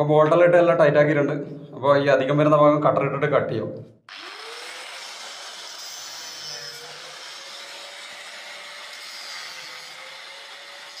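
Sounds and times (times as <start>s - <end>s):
angle grinder cutting: 4.1s - 11.0s.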